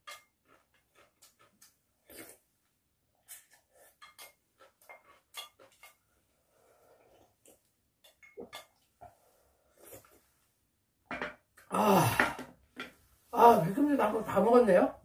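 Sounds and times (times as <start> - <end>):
person sipping: 2.0 - 2.5, 8.7 - 10.4.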